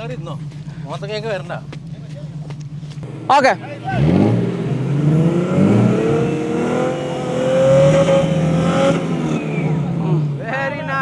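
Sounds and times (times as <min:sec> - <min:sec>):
engine revving hard: 0:03.0 - 0:10.4.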